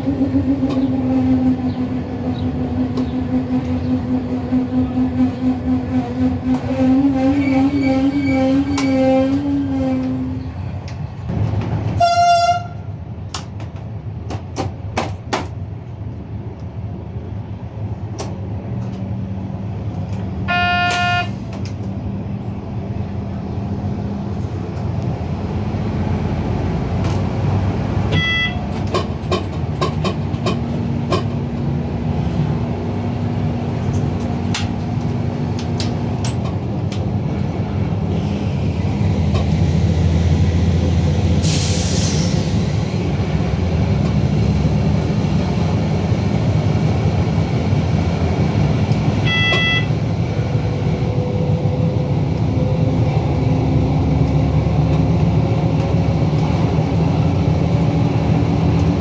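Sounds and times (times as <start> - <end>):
train rumbling along track: 0.0 - 59.0
train horn blast: 3.3 - 10.5, 12.0 - 12.9, 20.4 - 21.4, 28.1 - 28.8, 49.2 - 50.0
wheels clicking over rail joints: 26.9 - 32.6, 33.3 - 37.8
brief higher tone: 49.2 - 49.9.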